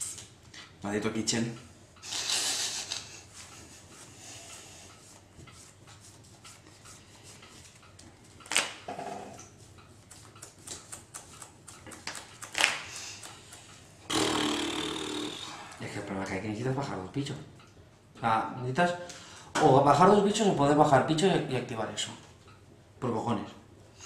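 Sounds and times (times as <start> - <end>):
cards being shuffled: 10.1 - 13.1.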